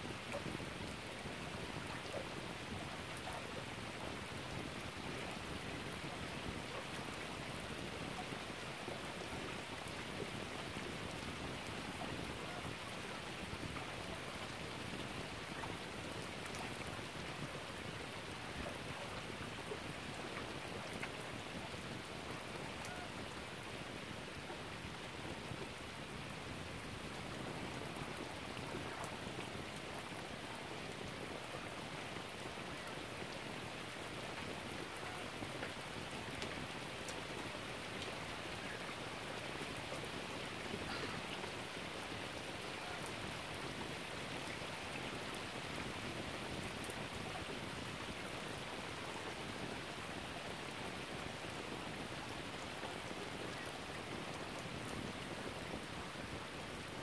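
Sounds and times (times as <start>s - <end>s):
steady rain hiss: 0.0s - 57.0s
raindrop ticks: 18.6s - 21.3s, 34.4s - 37.3s.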